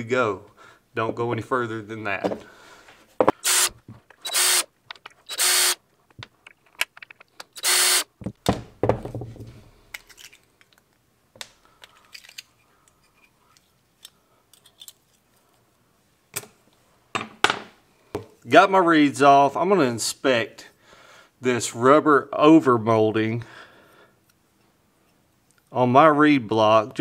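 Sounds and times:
cordless drill spinning: 3.3 - 4.7, 5.3 - 5.8, 7.5 - 8.1.

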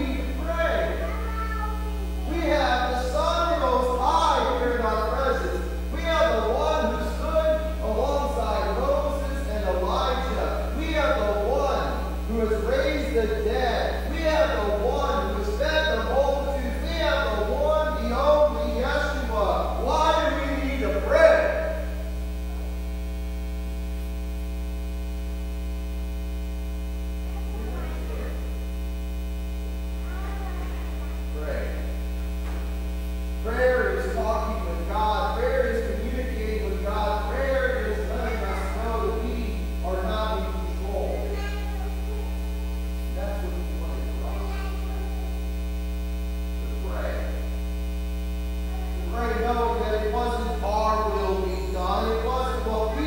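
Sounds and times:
man speaking: 0.0 - 1.2, 2.2 - 22.1, 31.3 - 32.0, 33.4 - 41.5, 43.1 - 44.8, 46.7 - 47.5, 48.9 - 53.0
faint voice: 0.0 - 4.8, 22.4 - 23.0, 27.2 - 28.6, 29.9 - 32.0, 39.9 - 45.5, 48.6 - 50.3
electrical mains hum: 0.0 - 53.0.

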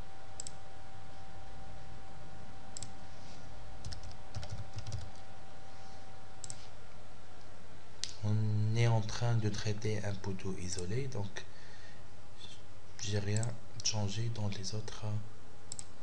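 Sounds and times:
faint hum and hiss: 0.0 - 16.0
mouse clicks: 0.4 - 0.6, 15.7 - 15.9
computer keyboard keystrokes: 3.8 - 5.2.

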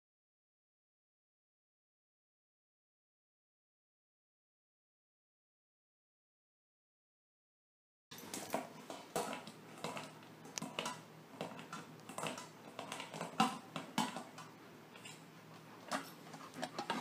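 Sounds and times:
metal dog bowl clattering: 8.1 - 17.0.

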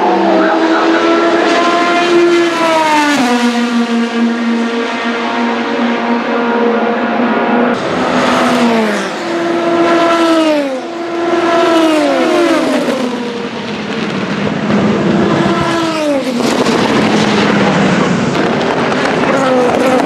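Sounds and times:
race cars passing at speed: 0.0 - 20.0.

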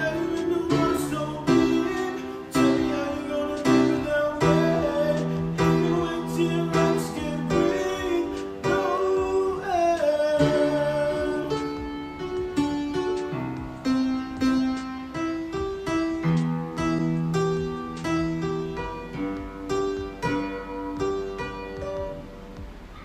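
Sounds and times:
man singing: 0.0 - 12.4.

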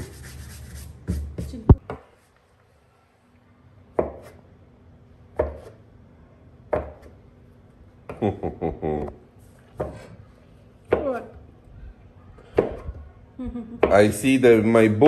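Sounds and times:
knife chopping on counter: 4.0 - 4.4, 5.4 - 5.8, 6.7 - 7.1.

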